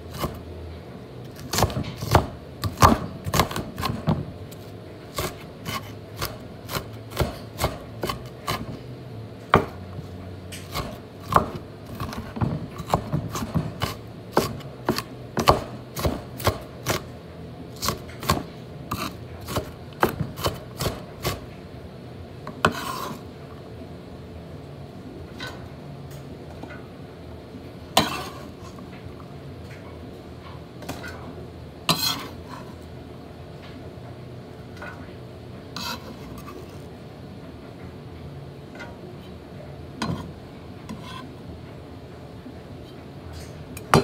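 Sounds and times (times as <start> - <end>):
knife chopping on wooden board: 1.4 - 4.2, 5.1 - 8.8, 9.5 - 9.8, 10.6 - 17.1, 17.8 - 21.4.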